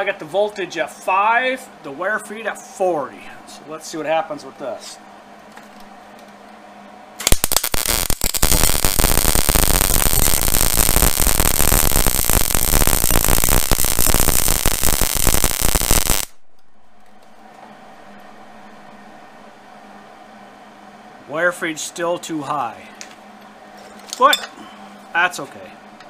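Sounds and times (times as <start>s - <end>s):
welder arc crackling: 7.2s - 17.4s.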